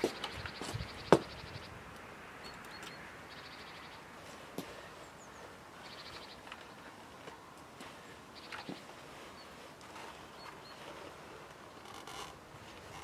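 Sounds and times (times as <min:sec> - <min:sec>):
high bird trills: 0:00.0 - 0:01.8, 0:02.4 - 0:04.1, 0:04.7 - 0:06.9, 0:08.3 - 0:11.1.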